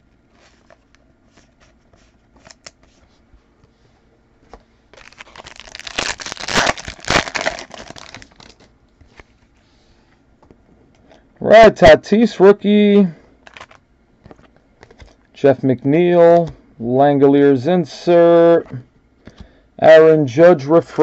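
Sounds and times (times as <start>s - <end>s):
wrapper ripped and crinkled: 5.0s - 8.7s.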